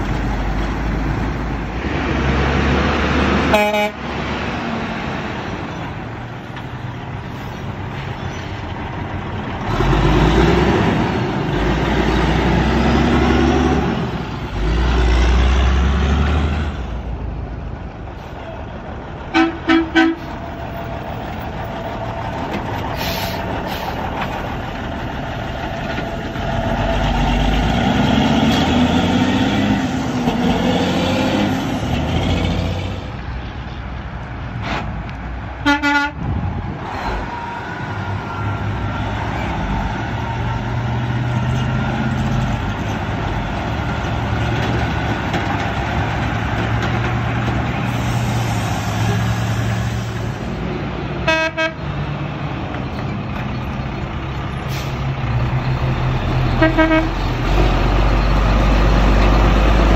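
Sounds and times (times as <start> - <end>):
diesel trucks accelerating past: 0.0 - 59.9
truck horn toots: 3.4 - 4.1, 19.3 - 20.4, 35.6 - 36.3, 51.2 - 51.9, 56.5 - 57.6.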